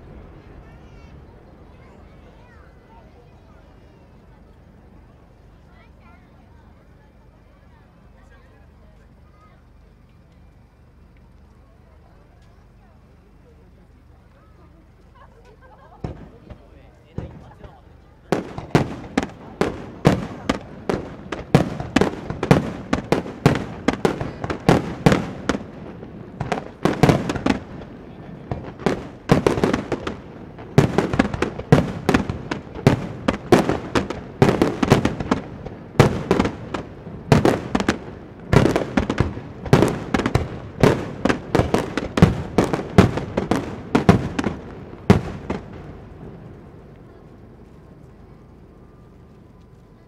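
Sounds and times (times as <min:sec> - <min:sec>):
fireworks bangs: 0:00.0 - 0:06.6, 0:15.0 - 0:48.4
fireworks crackling: 0:00.0 - 0:50.0.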